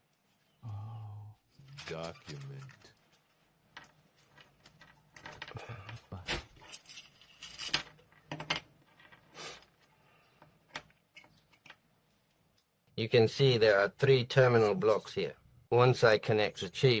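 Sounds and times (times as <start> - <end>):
small metal parts clicking: 6.6 - 9.9.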